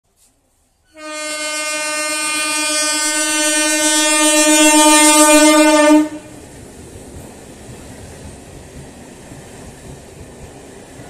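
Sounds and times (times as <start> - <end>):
train horn blast: 0.9 - 6.4.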